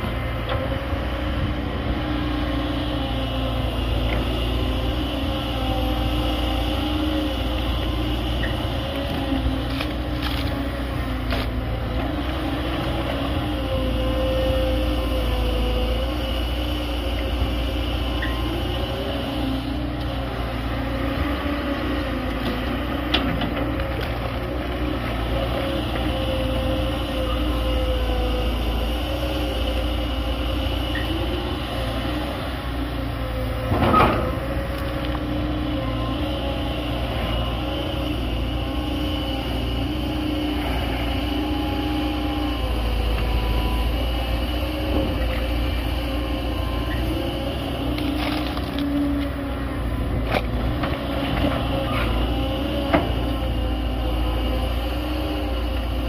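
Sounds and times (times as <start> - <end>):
diesel engine under load: 0.0 - 56.0
hydraulic whine: 24.4 - 56.0.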